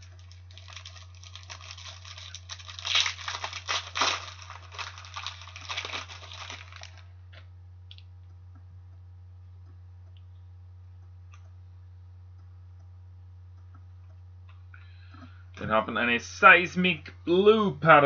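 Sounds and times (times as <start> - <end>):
foil wrapper crinkling and tearing: 0.0 - 7.2
steady low hum: 0.0 - 18.0.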